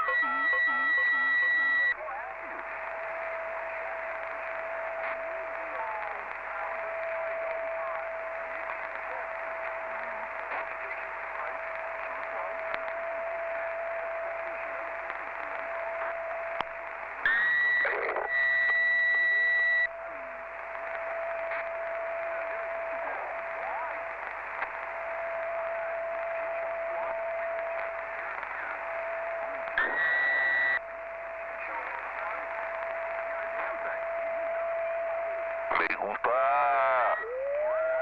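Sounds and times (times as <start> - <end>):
loud high-pitched tone: 0.0 - 2.0, 28.7 - 30.8
radio static hiss: 0.0 - 38.0.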